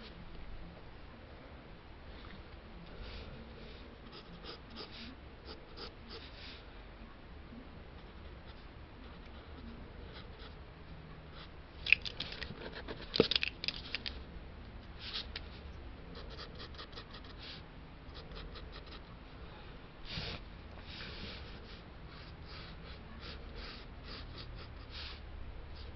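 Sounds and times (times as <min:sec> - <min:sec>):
pencil scratching on paper: 0:04.1 - 0:06.4, 0:21.4 - 0:25.2.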